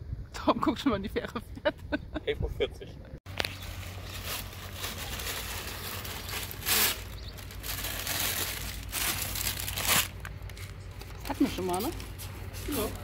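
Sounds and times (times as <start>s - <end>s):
paper bag crinkling: 3.3s - 13.0s.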